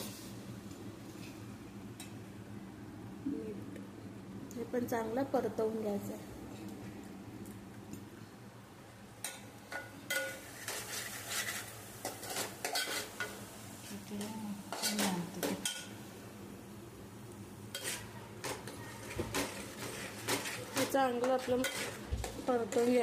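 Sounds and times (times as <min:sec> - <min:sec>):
spoon scraping steel pot: 0:17.8 - 0:22.0.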